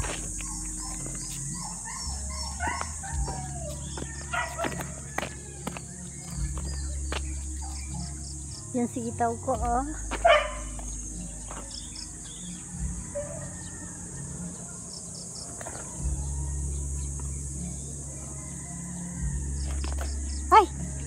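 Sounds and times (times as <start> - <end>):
bird chirps: 0.0 - 9.3, 10.2 - 13.8
insect chorus: 0.0 - 21.0.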